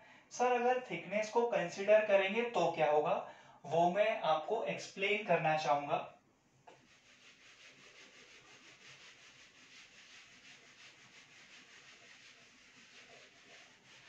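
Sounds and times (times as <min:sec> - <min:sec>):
whiteboard being wiped: 0:06.7 - 0:14.0.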